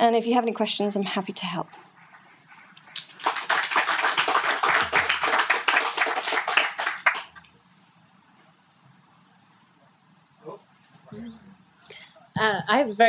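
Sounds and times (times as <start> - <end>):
audience applauding: 2.0 - 7.5.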